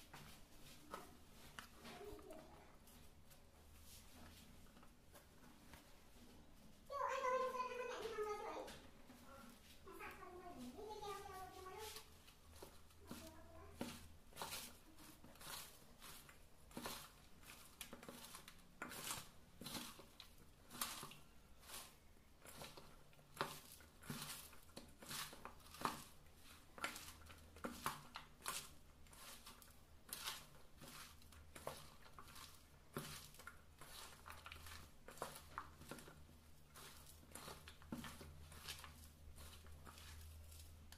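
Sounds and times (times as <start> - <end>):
hands rustling shredded vegetables: 0.0 - 40.9
scrape against steel bowl: 11.8 - 40.8.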